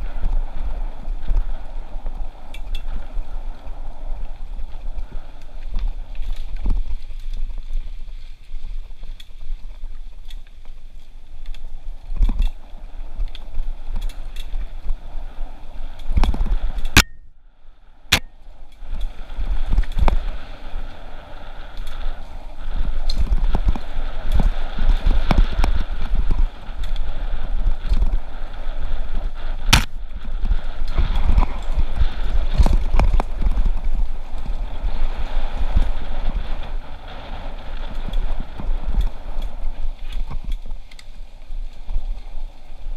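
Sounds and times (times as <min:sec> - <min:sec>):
bike rattling over bumps: 0:00.0 - 0:17.0, 0:18.0 - 0:42.9
wind rumble on microphone: 0:00.0 - 0:42.9.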